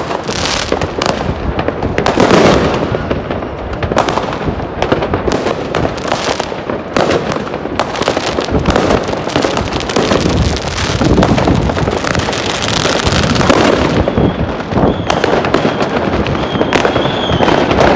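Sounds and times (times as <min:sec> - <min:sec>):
firecrackers banging and crackling: 0:00.0 - 0:17.9
faint high whistle: 0:13.9 - 0:17.6.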